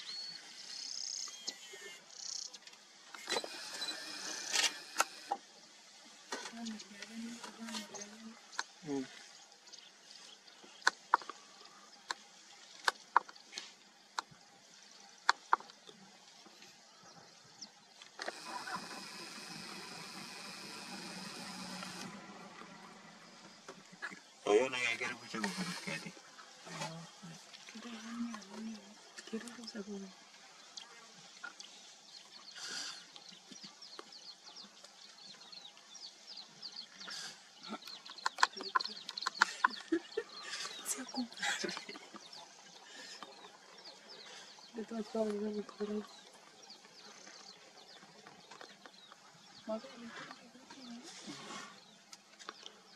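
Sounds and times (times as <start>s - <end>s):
faint hiss: 0.0s - 38.0s
small birds chirping: 0.0s - 52.9s
elephants tearing grass: 18.2s - 23.1s.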